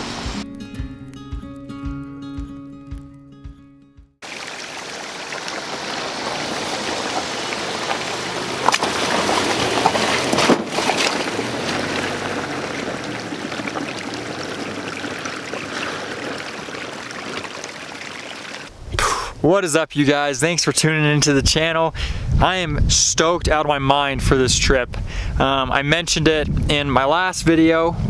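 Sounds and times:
tyres splashing through water: 4.2s - 18.7s
car engine running low: 5.1s - 17.9s
tyres crunching over stones: 5.4s - 18.6s.

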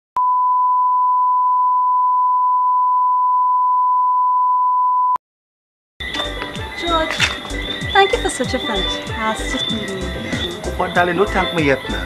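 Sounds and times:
sine test tone: 0.2s - 5.2s.

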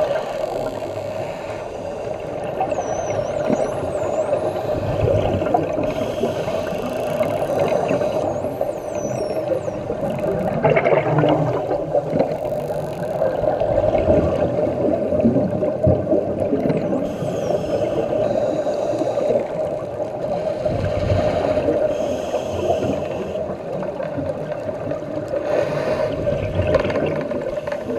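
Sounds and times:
steady underwater drone: 0.0s - 27.9s
dolphin whistles: 2.6s - 4.9s, 7.8s - 9.9s, 17.1s - 18.6s
dolphin buzzy bursts: 5.8s - 10.4s.

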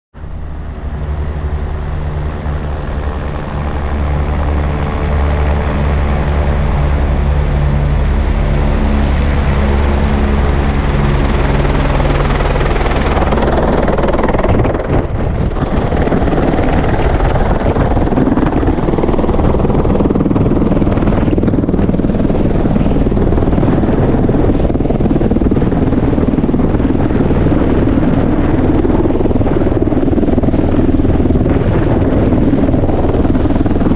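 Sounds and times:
helicopter rotor and turbine hum: 0.2s - 33.9s
rough rushing of rotor wash: 0.2s - 33.9s.

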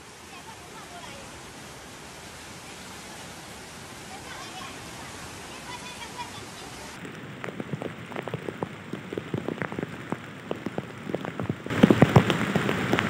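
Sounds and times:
rain falling: 0.0s - 13.0s
raindrops hitting close by: 0.0s - 13.0s.

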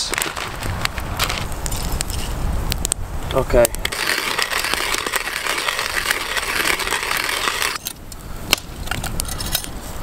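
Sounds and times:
hand coffee grinder grinding: 3.8s - 7.9s.

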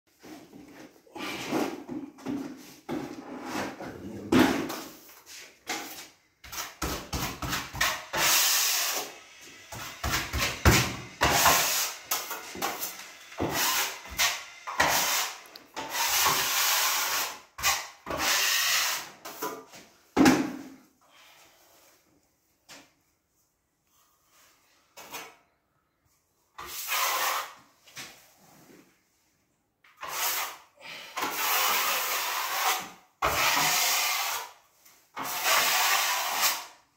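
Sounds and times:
taping knife scraping compound: 11.2s - 19.4s, 30.0s - 36.8s.

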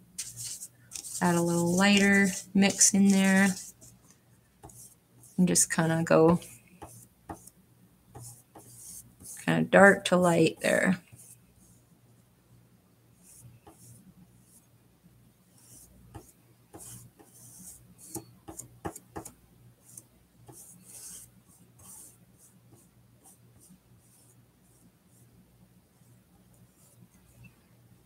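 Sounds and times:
paintbrush strokes: 0.2s - 9.6s, 10.4s - 12.3s, 13.1s - 14.7s, 15.4s - 27.6s.

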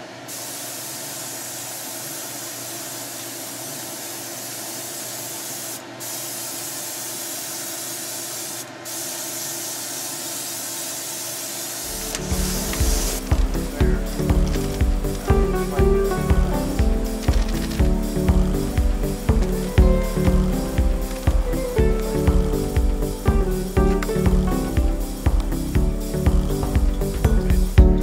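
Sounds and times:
airbrush hissing: 0.0s - 28.0s
music: 11.9s - 28.0s.

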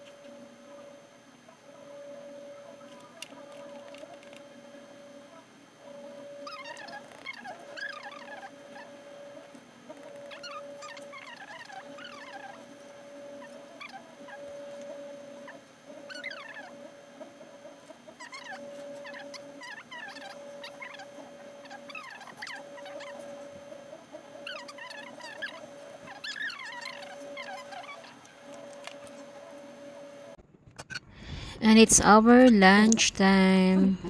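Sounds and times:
steady hum: 0.0s - 34.0s
high-pitched squeaky chirps: 6.4s - 9.0s, 10.0s - 14.8s, 15.4s - 16.8s, 18.2s - 23.6s, 24.4s - 29.3s.

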